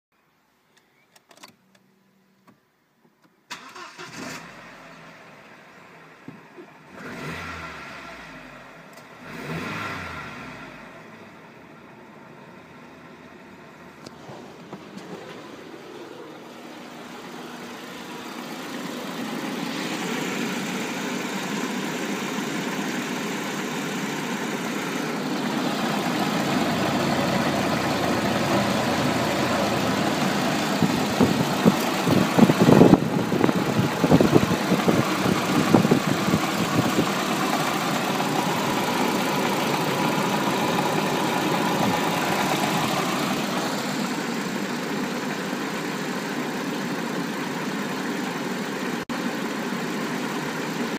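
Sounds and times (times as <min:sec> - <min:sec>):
car engine idling: 0:10.4 - 0:50.9
irregular engine thuds: 0:14.1 - 0:43.9.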